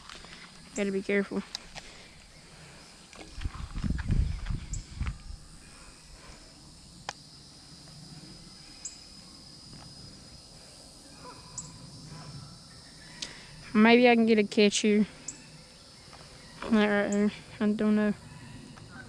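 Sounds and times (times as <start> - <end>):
insects droning: 0.0 - 19.0
wind rumbling on microphone: 3.1 - 6.3.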